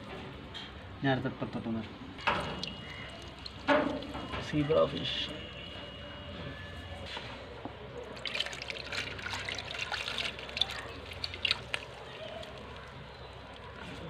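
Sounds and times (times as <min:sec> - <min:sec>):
water splashing and trickling: 0:02.0 - 0:06.1, 0:07.9 - 0:14.0
water dripping: 0:02.2 - 0:05.8, 0:08.0 - 0:13.8.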